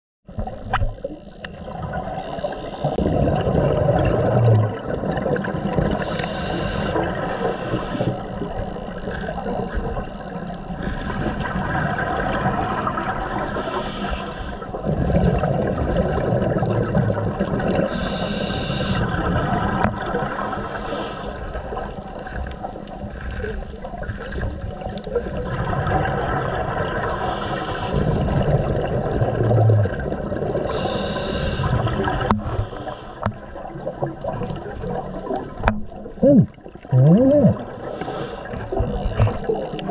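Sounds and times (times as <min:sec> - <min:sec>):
exhaled bubbles gurgling underwater: 0:00.3 - 0:39.9
hissing regulator inhalations: 0:02.2 - 0:03.0, 0:06.0 - 0:08.4, 0:13.5 - 0:14.8, 0:17.9 - 0:19.2, 0:20.7 - 0:21.6, 0:27.0 - 0:28.4, 0:30.7 - 0:33.4, 0:37.8 - 0:38.9.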